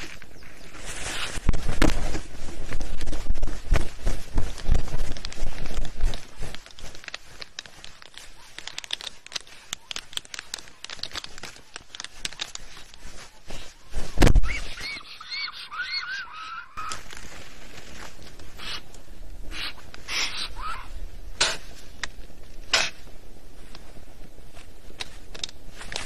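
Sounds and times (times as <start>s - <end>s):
wing flaps thumping: 1.3s - 9.4s, 10.6s - 14.8s
sharp clicks and taps: 3.7s - 13.2s.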